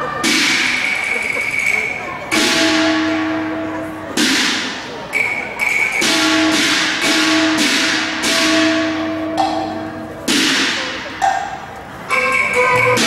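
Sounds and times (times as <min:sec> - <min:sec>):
cymbal crashes: 0:02.3 - 0:05.0, 0:06.0 - 0:11.3.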